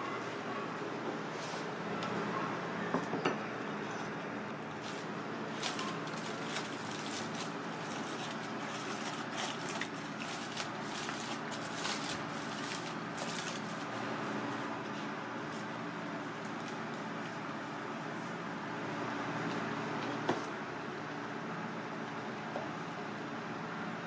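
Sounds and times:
steady background hum: 0.0 - 24.0
aluminium foil crinkling: 4.7 - 13.9.

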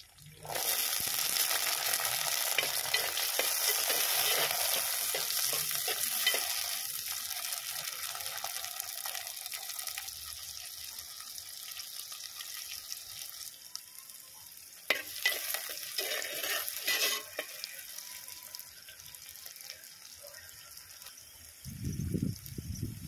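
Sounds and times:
food sizzling in hot oil: 0.0 - 23.0
spoon scraping in pot: 2.4 - 6.8, 14.9 - 17.8.

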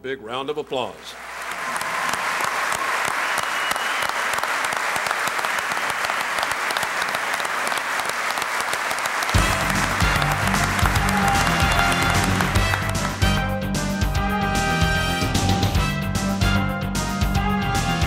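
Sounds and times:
audience applauding: 0.8 - 13.5
music: 9.3 - 18.0.

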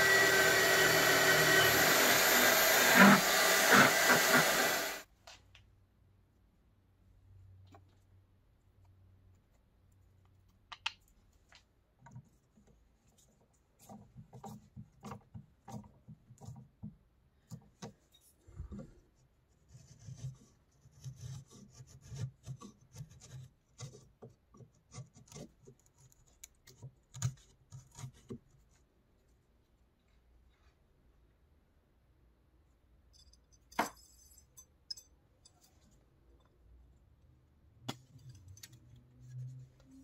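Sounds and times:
chisel scraping wood: 0.0 - 5.0, 19.6 - 28.6.

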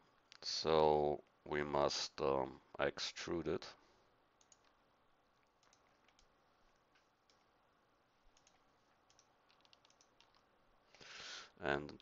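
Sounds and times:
low hiss: 0.0 - 12.0
keyboard and mouse clicks: 4.4 - 4.8, 5.4 - 7.5, 8.3 - 11.0.

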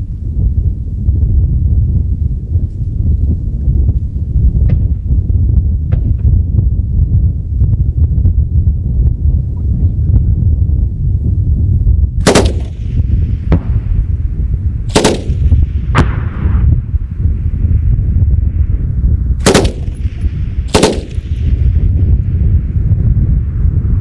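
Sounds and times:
wind rumble on microphone: 0.0 - 24.0
rifle shots with echo: 12.2 - 13.8, 14.9 - 16.6, 19.4 - 21.8.

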